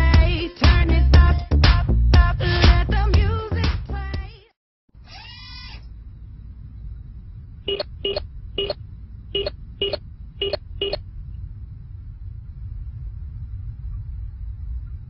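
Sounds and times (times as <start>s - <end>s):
steady low rumble: 5.3s - 15.0s
electronic keypad beeps: 7.7s - 8.8s, 9.4s - 11.0s.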